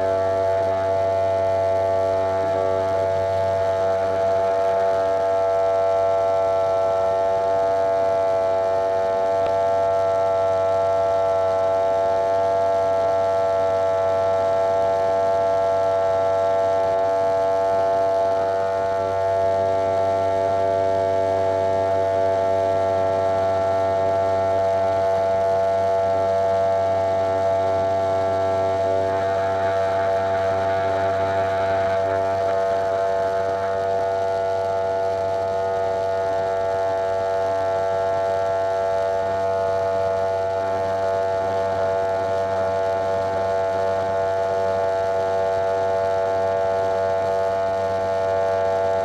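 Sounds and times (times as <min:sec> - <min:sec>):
electric hair clipper buzzing: 0:17.7 - 0:38.1.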